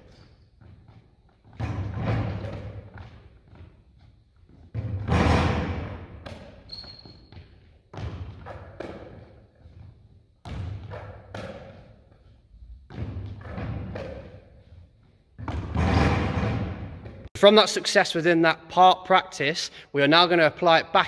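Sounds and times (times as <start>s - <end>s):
basketball bouncing off backboard and rim: 0.0s - 3.8s, 4.5s - 14.8s, 15.4s - 17.3s
ball bouncing on hall floor: 0.0s - 17.3s
brief high squeak: 6.7s - 7.3s.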